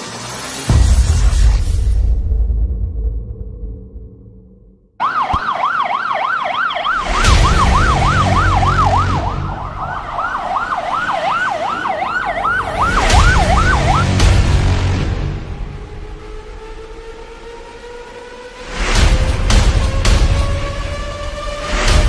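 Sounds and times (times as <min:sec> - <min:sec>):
police siren yelping: 0:05.0 - 0:14.2.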